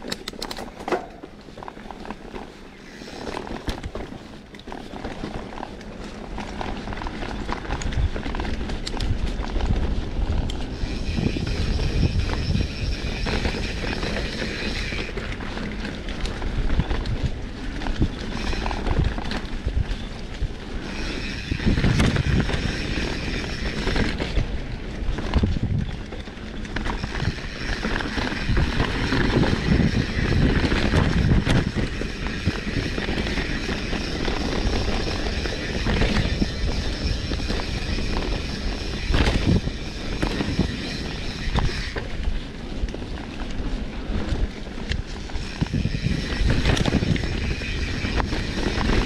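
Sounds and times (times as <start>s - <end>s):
wind buffeting microphone: 6.3s - 49.0s
high steady buzz: 26.8s - 42.5s.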